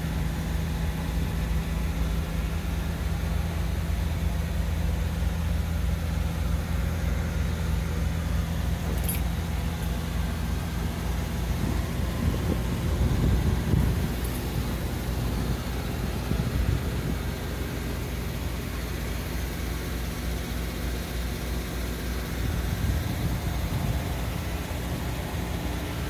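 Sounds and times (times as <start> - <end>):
car engine idling: 0.0 - 26.0.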